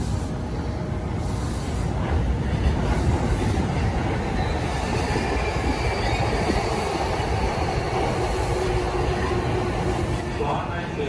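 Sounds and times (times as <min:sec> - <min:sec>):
train wheels rumbling on track: 0:00.0 - 0:11.0
high wheel squeal: 0:04.2 - 0:07.2.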